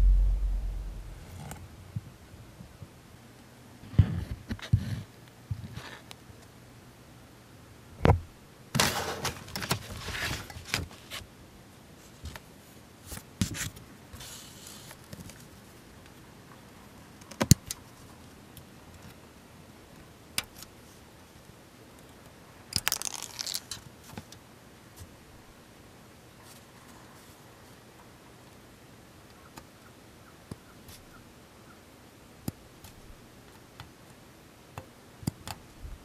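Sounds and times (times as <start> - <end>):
rustling and crinkling: 8.8 - 11.2, 22.8 - 24.3.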